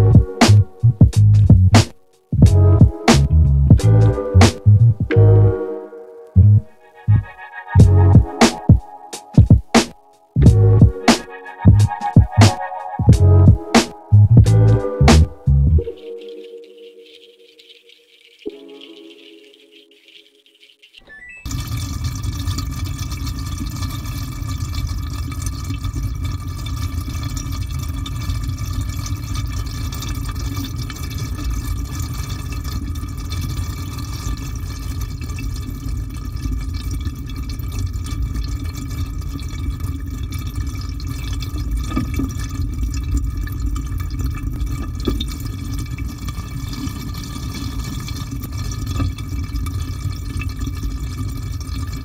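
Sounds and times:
deep rumble: 0.0 - 1.8, 2.4 - 5.5, 6.4 - 8.3, 10.4 - 15.8
water rushing into washing machine: 6.9 - 14.2, 18.4 - 52.0.

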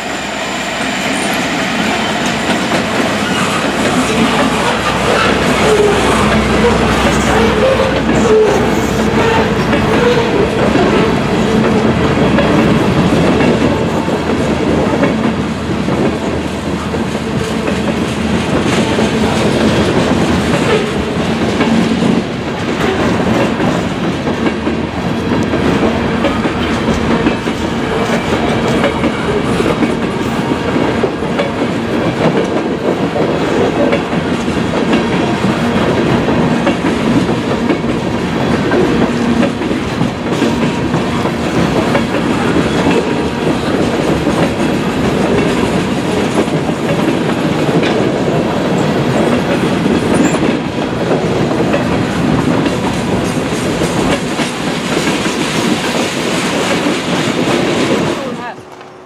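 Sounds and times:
freight train rumble: 0.0 - 59.0
train wheels clicking over rail joints: 0.3 - 59.0.

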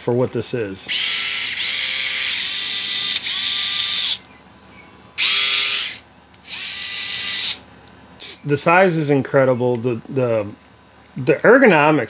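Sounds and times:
cordless screwdriver whine: 0.9 - 4.2, 5.2 - 7.6.

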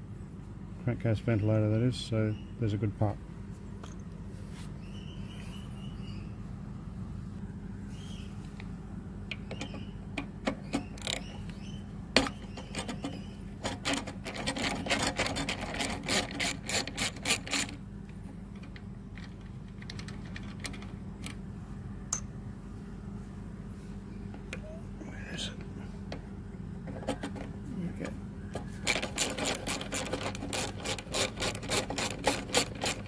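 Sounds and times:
socket ratchet clicking: 12.2 - 17.8, 28.9 - 33.0.

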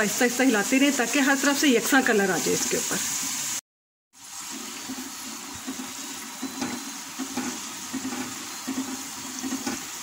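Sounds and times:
dough sizzling in hot oil: 0.0 - 3.6, 4.2 - 10.0
skimmer scraping and knocking: 4.5 - 10.0.

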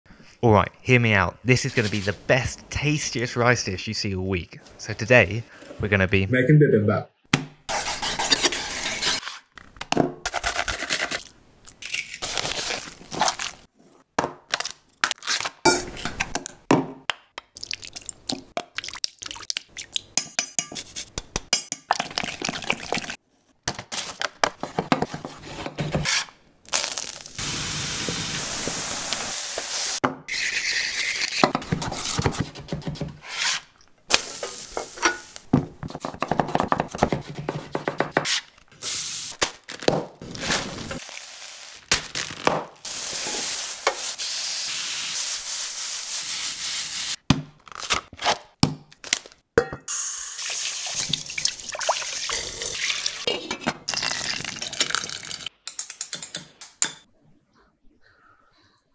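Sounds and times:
meat sizzling in pan: 27.0 - 30.0, 40.7 - 41.9, 42.8 - 47.2.

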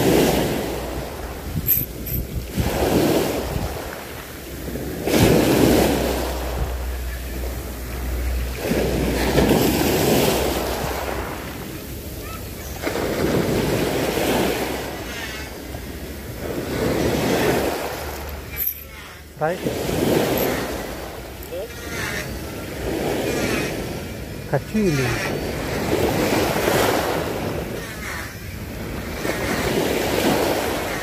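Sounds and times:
wind on microphone: 0.0 - 7.8
small waves breaking: 0.0 - 31.0.

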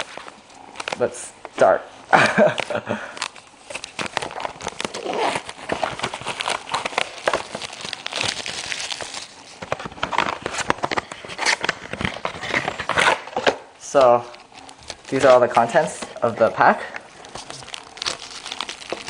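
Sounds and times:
plastic shrink-wrap crinkling: 2.2 - 19.0.

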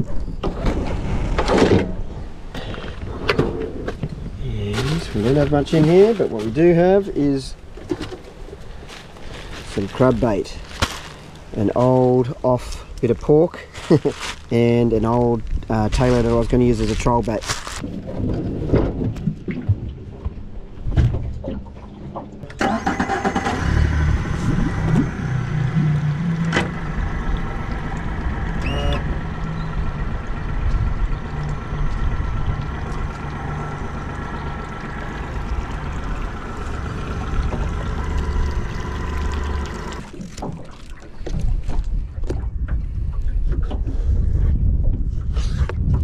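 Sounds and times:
boat motor running: 23.6 - 42.5.

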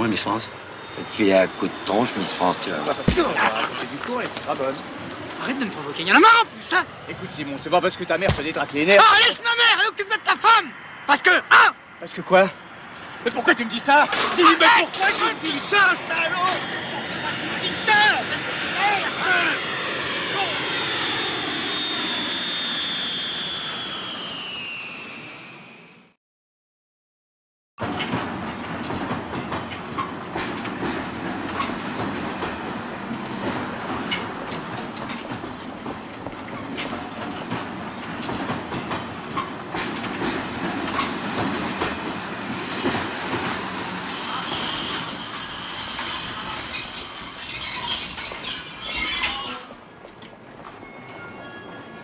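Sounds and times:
high-pitched squeal: 0.0 - 7.9, 13.7 - 26.2, 42.5 - 49.9
train wheels clattering over rail joints: 27.8 - 45.1.

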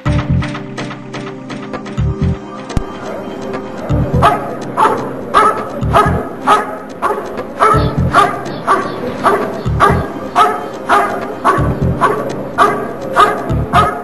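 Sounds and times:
dog barking: 3.8 - 14.0.

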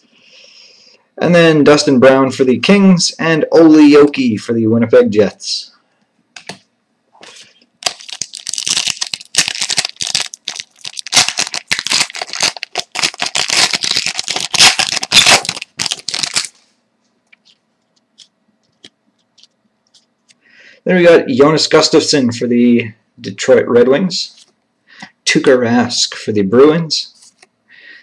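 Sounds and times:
card pack wrapper tearing and crinkling: 7.2 - 16.6
cards being handled ticks: 17.4 - 20.4.

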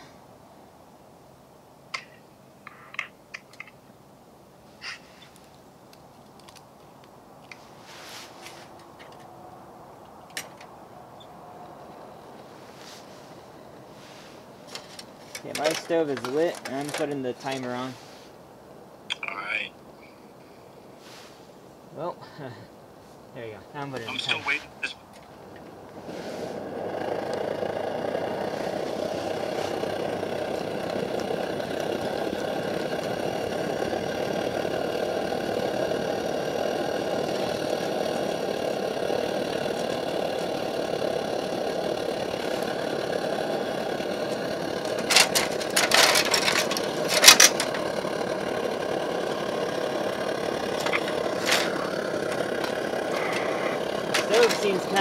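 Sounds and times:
camp stove burning: 0.0 - 55.0
metal clicks and clatters: 44.9 - 47.8.

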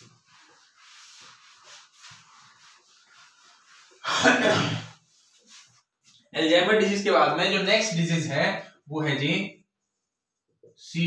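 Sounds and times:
duster swishing on whiteboard: 0.0 - 6.3
man coughing: 4.0 - 5.0.

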